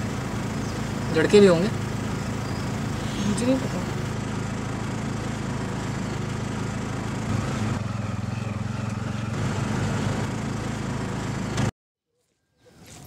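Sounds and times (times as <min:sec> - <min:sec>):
road noise: 0:00.0 - 0:11.7
small engine running: 0:00.0 - 0:11.7.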